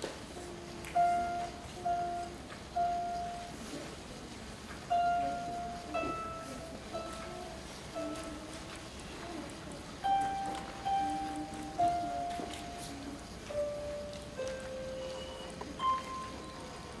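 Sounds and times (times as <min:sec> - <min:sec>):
harp plucked notes: 0:04.9 - 0:08.6, 0:10.0 - 0:17.0.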